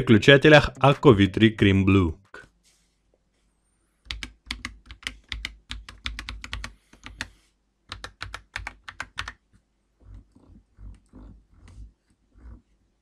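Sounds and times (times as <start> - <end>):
mechanical keyboard typing: 4.1 - 7.3, 7.9 - 9.4.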